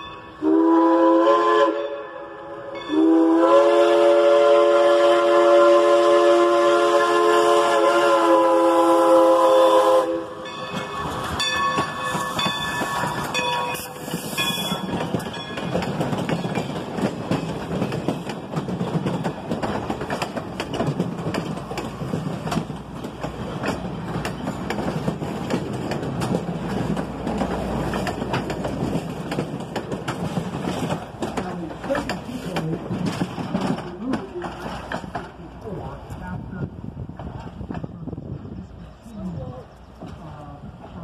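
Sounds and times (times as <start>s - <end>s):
steam whistle chord: 0.3s - 10.5s
bell ringing: 10.4s - 15.8s
train wheels clattering over rail joints: 10.5s - 35.6s.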